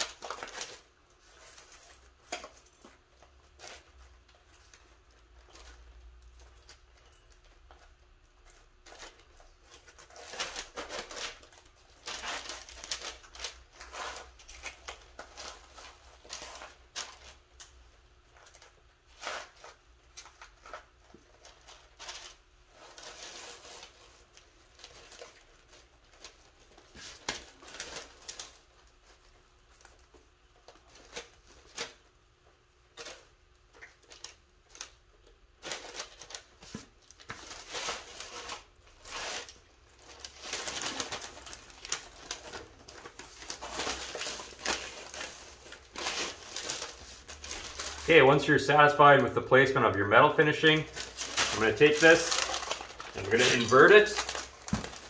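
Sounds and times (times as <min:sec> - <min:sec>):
plastic sheeting crinkling: 0:08.8 - 0:17.4, 0:35.6 - 0:55.0.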